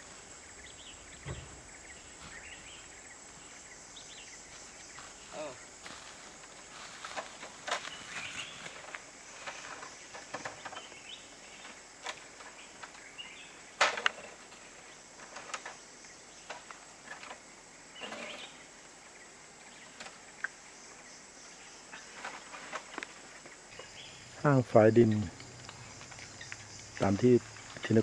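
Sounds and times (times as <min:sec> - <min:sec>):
insects hissing: 0:00.0 - 0:28.0
rustling: 0:04.4 - 0:10.9, 0:22.0 - 0:24.0.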